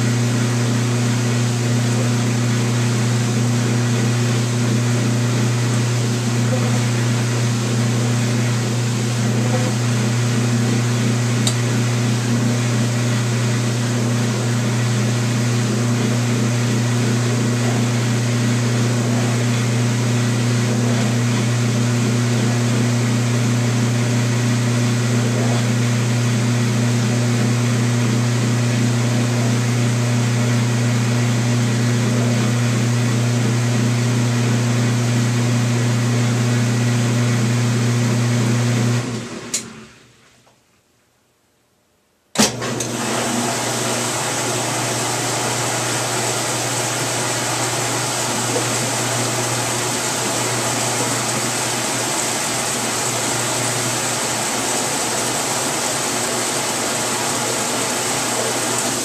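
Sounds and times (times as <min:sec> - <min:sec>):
washing machine running: 0:00.0 - 0:40.3, 0:42.3 - 0:59.0.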